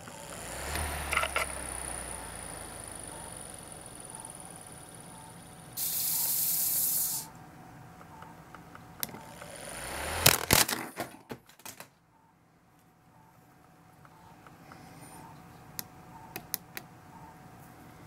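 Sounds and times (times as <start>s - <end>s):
small motor whirring: 0.0s - 7.3s, 9.2s - 10.5s
loud hiss: 5.8s - 7.3s.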